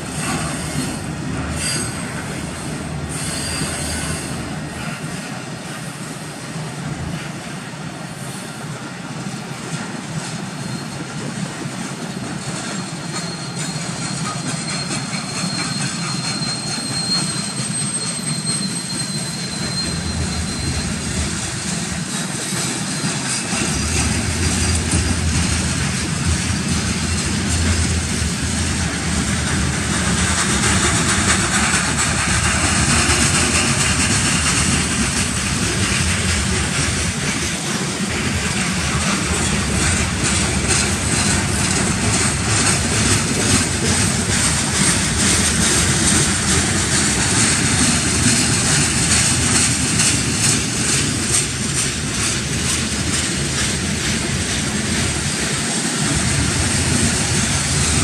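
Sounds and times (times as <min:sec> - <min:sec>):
freight train wheels rumbling: 0:00.0 - 0:58.0
rhythmic wheel clatter: 0:12.2 - 0:58.0.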